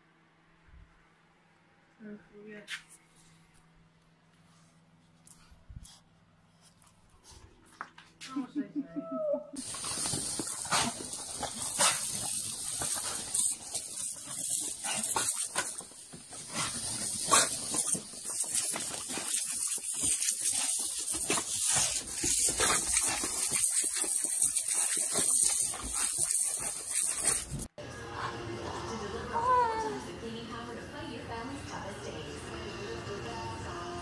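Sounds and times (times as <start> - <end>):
dog sounds: 9.3 - 28.4
garden hose spraying water: 9.6 - 27.7.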